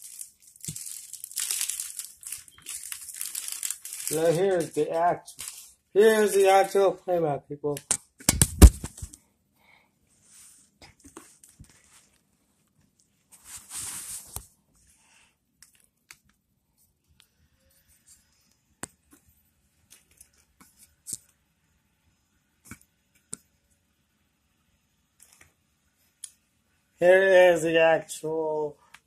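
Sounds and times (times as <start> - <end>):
rustling: 0.0 - 6.8, 10.2 - 14.5.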